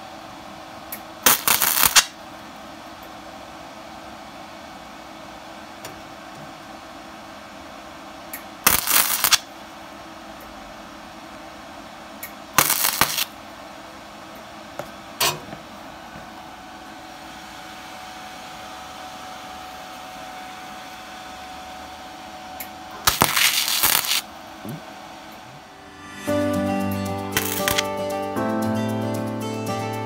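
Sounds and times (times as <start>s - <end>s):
welding arc crackling: 1.2s - 2.2s, 8.6s - 9.5s, 12.6s - 13.3s, 23.0s - 24.3s, 27.2s - 28.1s
steady low hum: 9.5s - 29.2s.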